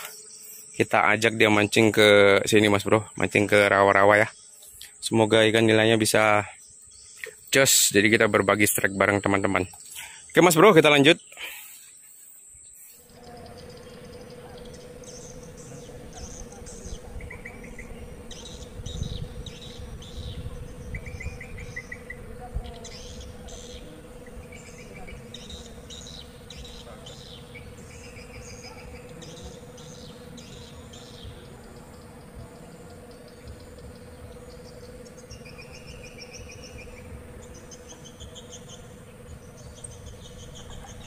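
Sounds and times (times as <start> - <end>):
birds chirping: 0.0 - 41.0
insects chirping: 0.0 - 41.0
rapidly pulsed trills: 6.2 - 41.0
steady hum: 11.5 - 41.0.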